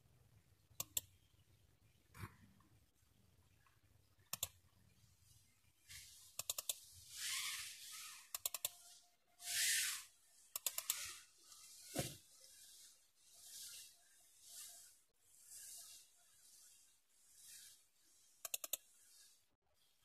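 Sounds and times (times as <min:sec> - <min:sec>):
computer mouse double-clicks: 0:00.8 - 0:01.1, 0:04.3 - 0:04.6, 0:06.4 - 0:06.8, 0:08.3 - 0:08.8, 0:10.5 - 0:11.1, 0:18.4 - 0:18.9
short bursts of hiss: 0:07.1 - 0:14.8.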